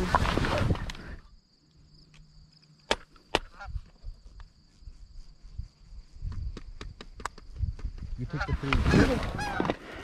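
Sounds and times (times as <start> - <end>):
faint geese calling: 3.3 - 6.2, 8.2 - 10.0.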